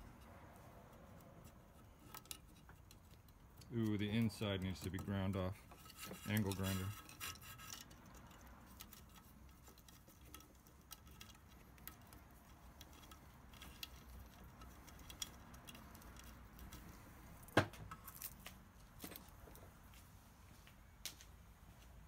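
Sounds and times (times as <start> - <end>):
small clicks and taps of handling: 0.1 - 21.3.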